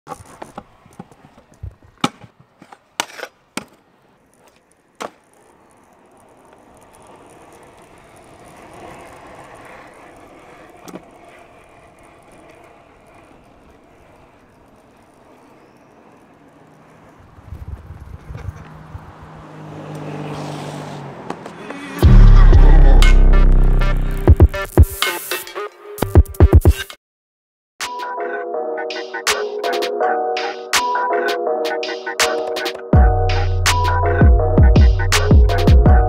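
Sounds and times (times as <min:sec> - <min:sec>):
scooter clacks and knocks: 0:00.1 - 0:03.8, 0:04.4 - 0:05.3, 0:05.9 - 0:17.2, 0:21.2 - 0:22.0
wheels rolling on asphalt: 0:00.1 - 0:22.0.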